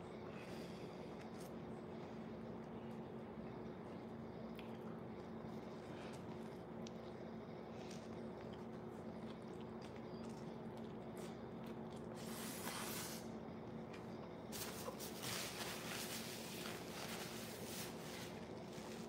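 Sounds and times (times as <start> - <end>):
steady low hum: 0.0 - 19.0
chewing sandwich: 0.9 - 12.3.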